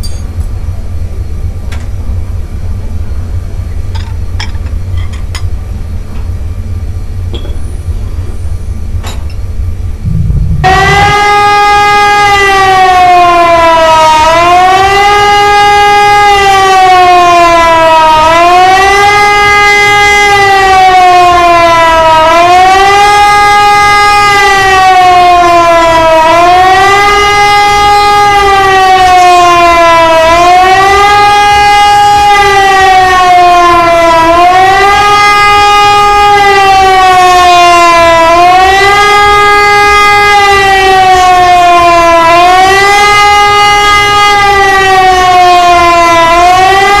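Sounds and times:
siren wailing: 10.0 - 47.0.

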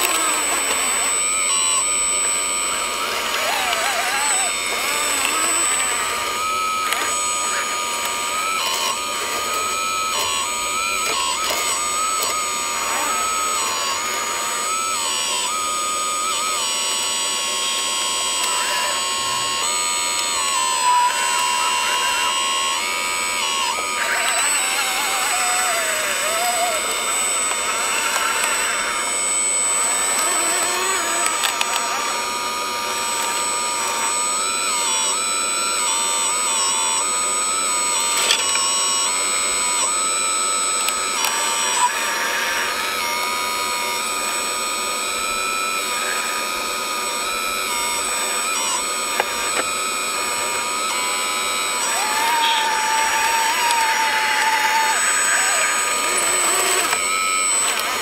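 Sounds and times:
small electric motors whining: 0.0 - 58.0
sharp clicks: 48.0 - 58.0.

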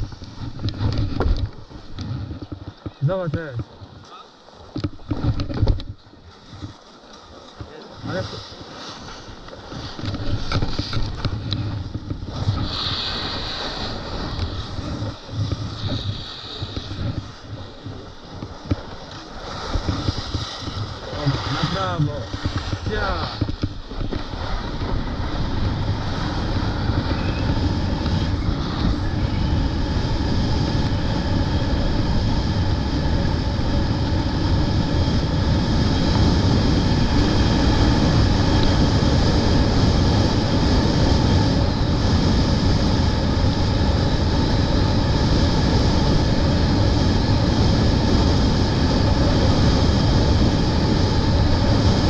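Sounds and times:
wind over microphone: 0.0 - 52.0
skis hissing over snow: 7.3 - 11.0, 11.8 - 23.4, 24.0 - 31.8.

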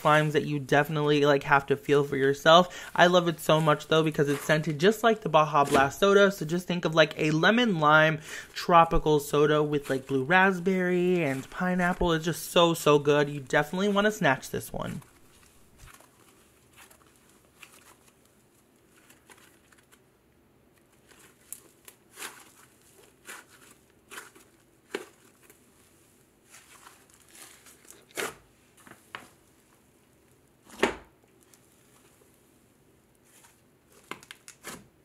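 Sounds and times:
slime crackling and tearing: 21.0 - 25.6, 26.4 - 28.4.

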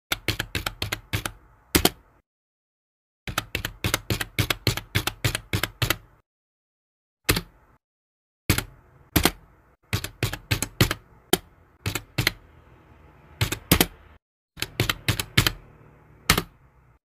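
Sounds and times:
faint hum: 11.0 - 17.0
sharp typing clacks: 11.8 - 12.4, 14.6 - 15.6.

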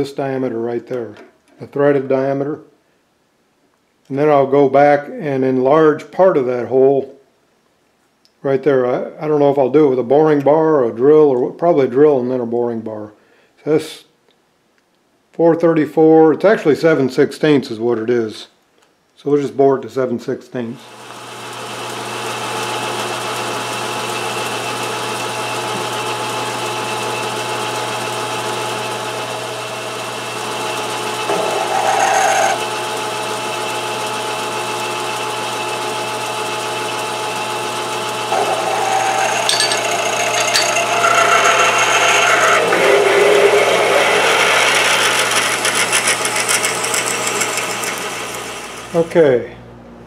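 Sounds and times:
lathe motor hum: 21.0 - 49.1
drill cutting metal: 25.7 - 49.0.

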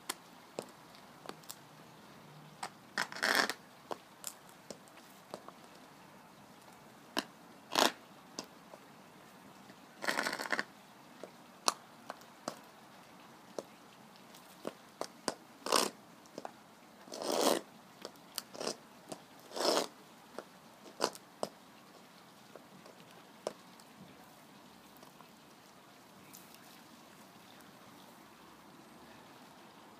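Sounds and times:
boots scraping on concrete: 19.5 - 21.5.

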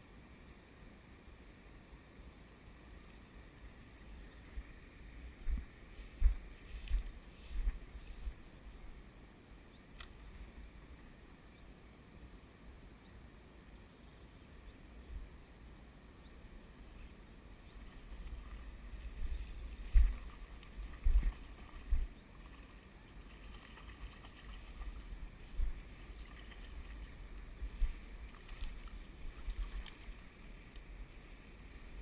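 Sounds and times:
wind rumble on microphone: 3.6 - 9.2, 16.5 - 32.0.

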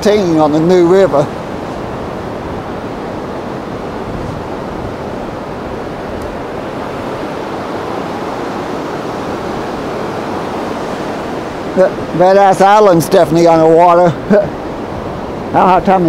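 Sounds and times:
river rushing over rapids: 0.0 - 16.0.

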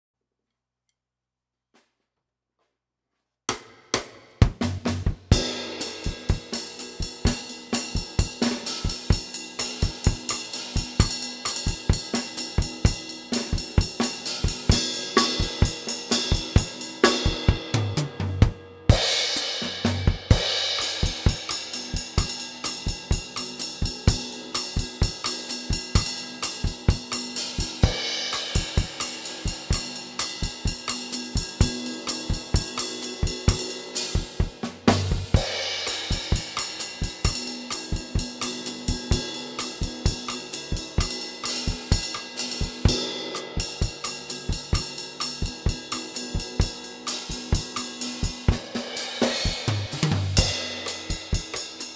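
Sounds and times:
drum kit groove: 3.5 - 51.9.

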